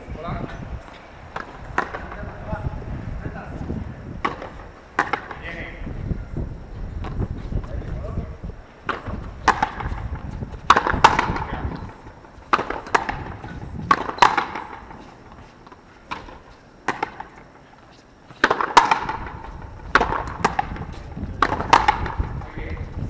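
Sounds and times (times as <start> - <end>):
ball smacking off concrete wall: 1.3 - 2.2, 4.2 - 5.6, 8.8 - 9.9, 10.7 - 15.0, 16.1 - 17.5, 18.4 - 22.7
rackets striking rubber ball: 1.4 - 2.2, 4.2 - 5.5, 8.8 - 10.0, 10.6 - 15.0, 15.7 - 17.5, 18.4 - 22.6.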